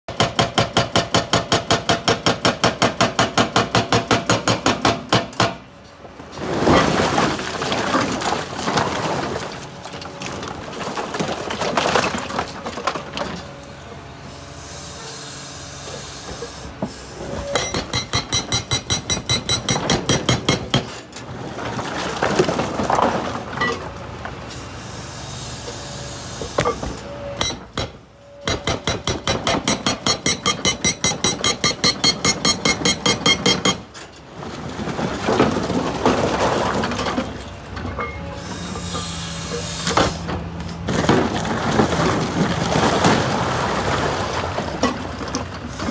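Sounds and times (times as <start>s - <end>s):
hydraulic rock breaker hammering: 0.1s - 5.7s, 17.3s - 21.0s, 26.4s - 33.9s.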